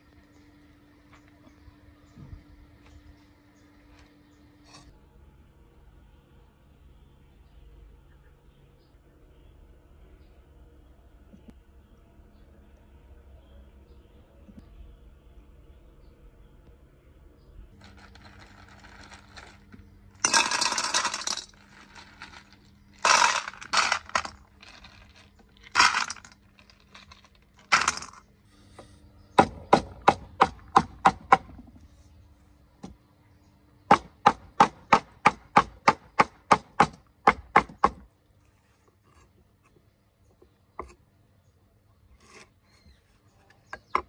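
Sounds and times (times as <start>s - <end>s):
shells clattering into metal pan: 17.8s - 28.2s.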